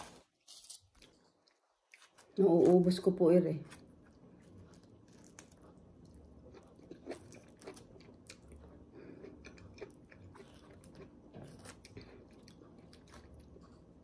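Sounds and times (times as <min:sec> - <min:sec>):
chewing juicy fruit: 0:00.4 - 0:14.0.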